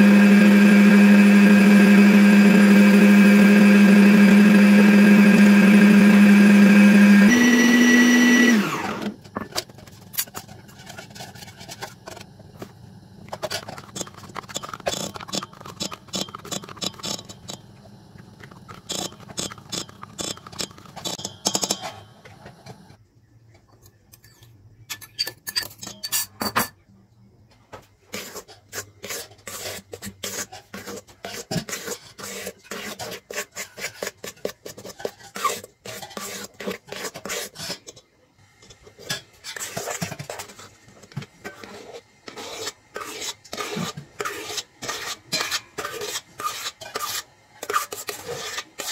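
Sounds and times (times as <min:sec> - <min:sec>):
electric stand mixer: 0:00.0 - 0:09.2
utensils scraping metal bowl: 0:00.2 - 0:12.4, 0:13.3 - 0:23.0, 0:28.1 - 0:38.0, 0:38.9 - 0:48.9.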